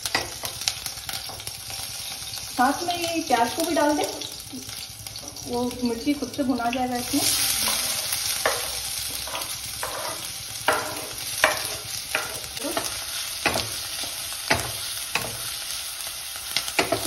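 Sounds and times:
onion sizzling in hot oil: 0.0 - 17.0
knife and spatula scraping: 7.2 - 15.4.

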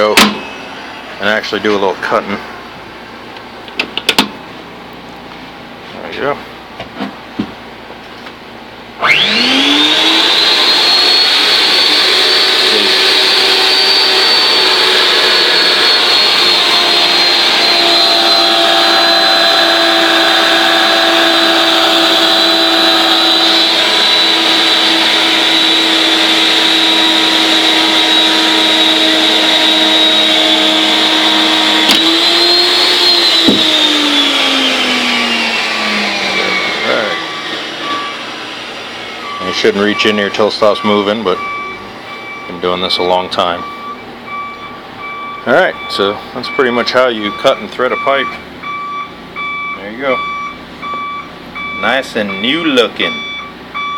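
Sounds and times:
pipe threading machine motor whine: 0.0 - 2.8, 9.0 - 53.9.

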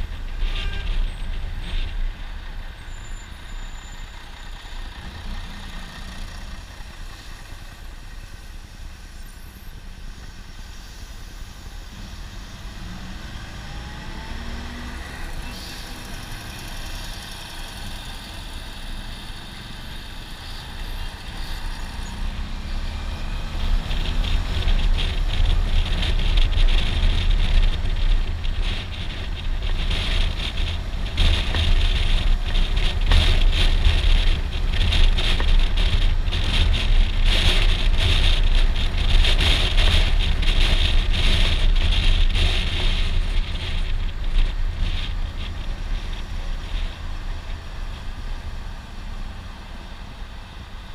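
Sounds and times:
motorcycle engine accelerating: 11.4 - 50.9
wind buffeting on microphone: 11.9 - 50.9.

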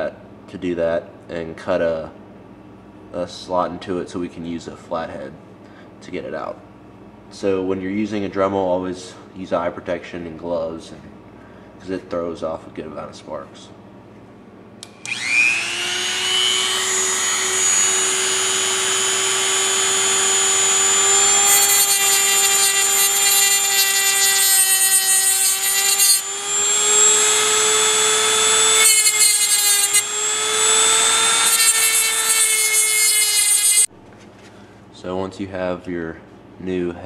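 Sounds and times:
rotary tool grinding metal: 15.0 - 33.9.

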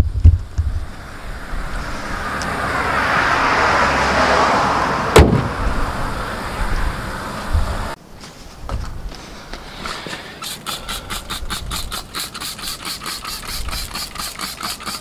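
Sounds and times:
rushing noise: 0.1 - 8.0
car bonnet shutting thud: 5.1 - 5.7.

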